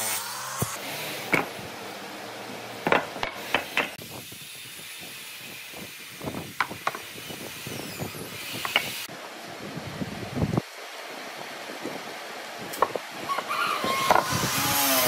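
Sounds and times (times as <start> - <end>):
wooden blocks knocking on workbench: 2.9 - 3.9.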